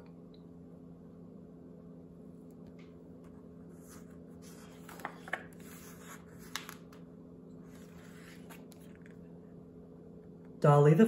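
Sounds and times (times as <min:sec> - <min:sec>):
faint steady hum: 0:00.0 - 0:11.0
book pages turning: 0:02.6 - 0:09.2.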